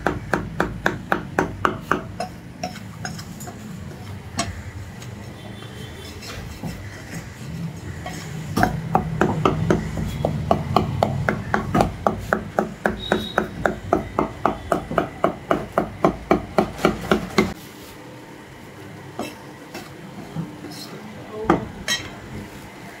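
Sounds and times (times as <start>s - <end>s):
cleaver chopping meat on wood: 0.0s - 2.8s, 8.6s - 17.6s.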